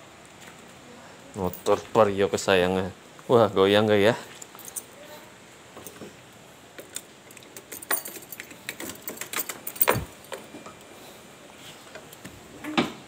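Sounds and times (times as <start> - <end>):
scooter clicks and rattles: 6.8 - 10.5.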